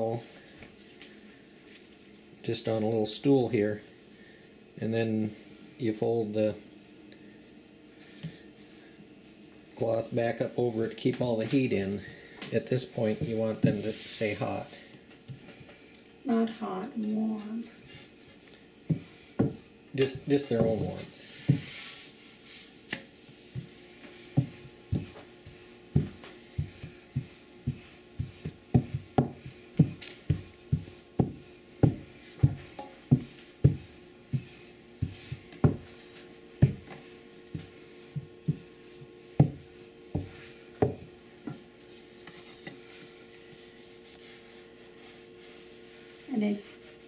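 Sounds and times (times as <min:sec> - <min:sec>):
cloth and dough rubbing: 0:00.0 - 0:15.0, 0:16.3 - 0:47.0
rolling pin knocking on board: 0:18.9 - 0:21.7, 0:26.0 - 0:35.9, 0:39.4 - 0:41.6.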